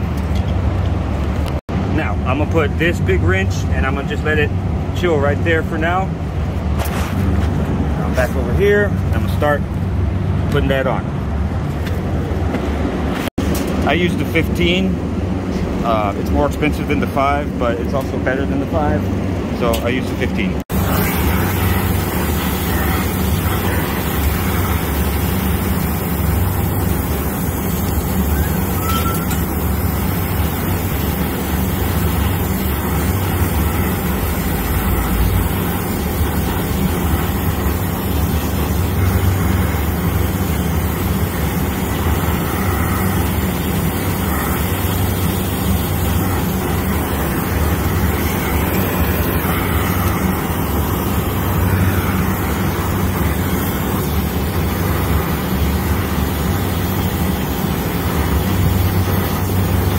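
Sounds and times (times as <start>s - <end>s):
low machinery hum: 0.0s - 59.9s
torch flame burning: 20.6s - 59.9s.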